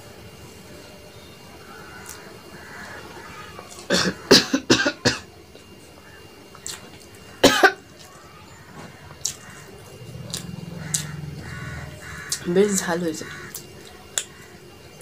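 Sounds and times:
person coughing: 3.9 - 5.3, 7.4 - 7.8
mouth eating sounds: 6.5 - 7.1, 9.0 - 14.4
low hum: 8.8 - 13.9.

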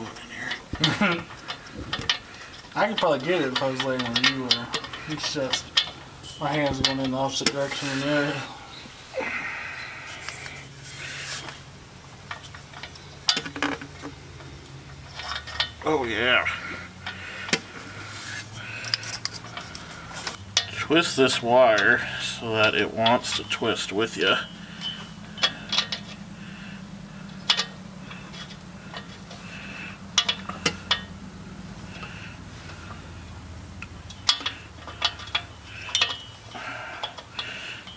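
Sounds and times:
low steady hum: 0.0 - 37.9
wrench clicking and rubbing: 17.1 - 20.4.

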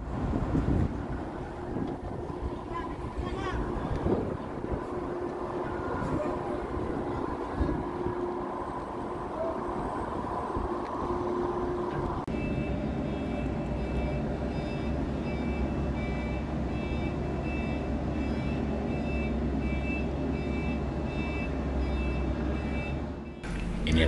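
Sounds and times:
forklift engine rumble: 0.0 - 24.0
reversing alarm beeping: 11.1 - 23.5.

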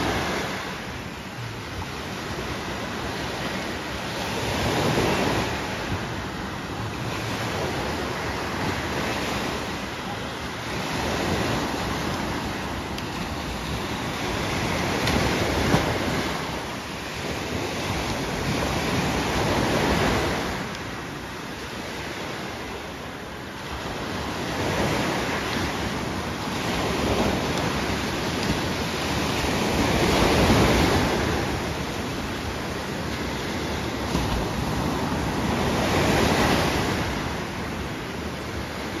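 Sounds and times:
small waves breaking on beach: 0.0 - 39.0.

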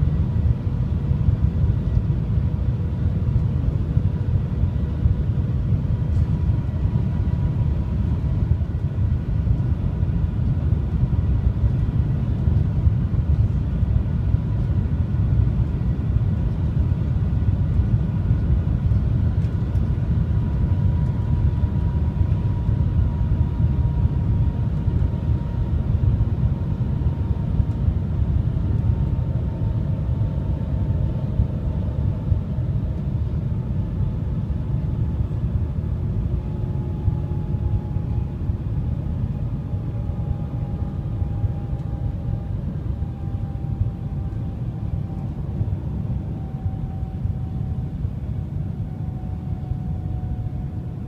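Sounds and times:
train cabin rumble and rush: 0.0 - 30.7
faint steady whine: 0.0 - 51.0.

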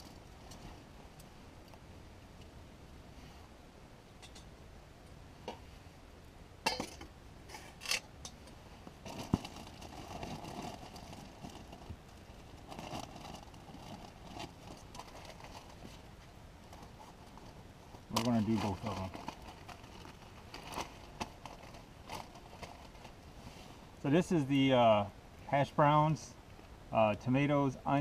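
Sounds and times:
plastic bag crinkling: 9.1 - 15.8, 18.1 - 23.2.

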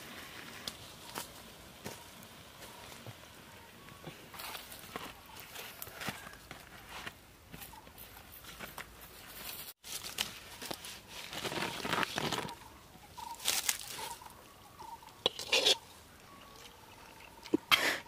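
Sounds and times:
banana leaf rustling and crinkling: 4.4 - 7.2, 8.4 - 14.3.

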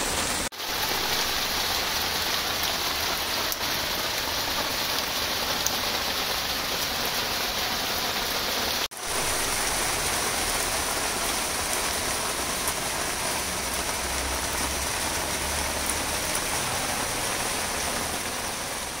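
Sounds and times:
rain on wet concrete: 0.0 - 19.0.

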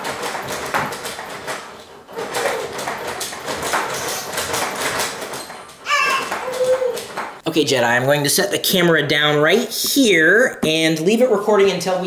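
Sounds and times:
baby jumper rattling and clicking: 0.0 - 7.4.

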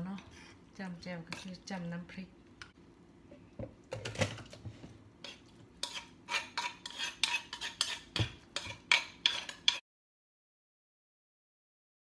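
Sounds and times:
spoon scraping metal bowl: 0.0 - 1.7, 5.2 - 9.8.

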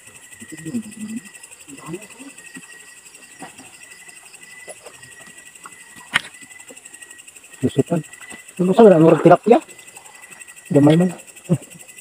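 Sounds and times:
insects chirring: 0.0 - 12.0
faint low voices murmuring: 0.4 - 3.8.

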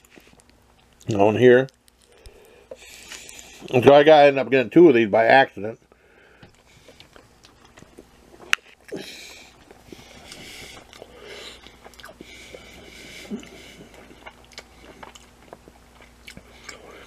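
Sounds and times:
person chewing: 0.0 - 3.8, 6.5 - 17.0
breathing through the nose: 2.1 - 3.7, 6.0 - 7.2, 8.9 - 14.2.

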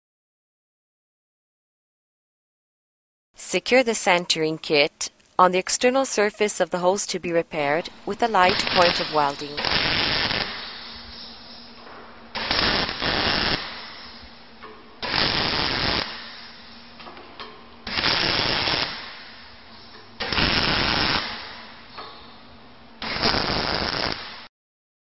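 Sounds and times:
arc welding crackle: 7.8 - 17.0, 17.8 - 22.2, 23.0 - 24.5.

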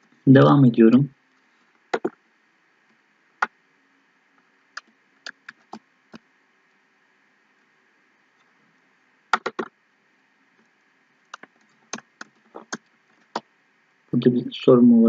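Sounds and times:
computer mouse clicking: 1.9 - 2.2, 4.8 - 6.2, 9.3 - 9.7, 10.6 - 13.5.

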